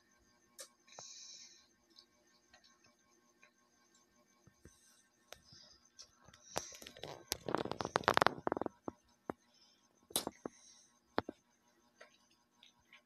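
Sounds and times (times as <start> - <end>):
baby sucking and gurgling: 6.6 - 8.8.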